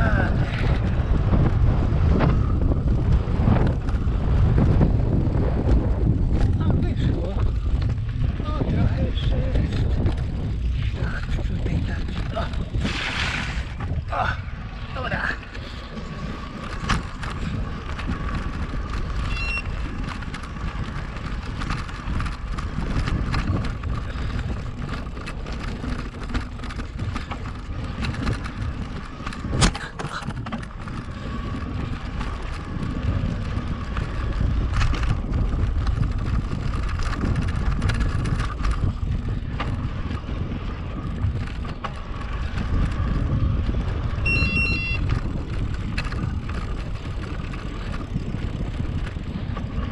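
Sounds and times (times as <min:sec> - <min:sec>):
tyre noise: 0:00.0 - 0:49.9
wind rumbling on microphone: 0:00.0 - 0:49.9
short electronic beep: 0:19.3 - 0:19.8, 0:44.3 - 0:45.0.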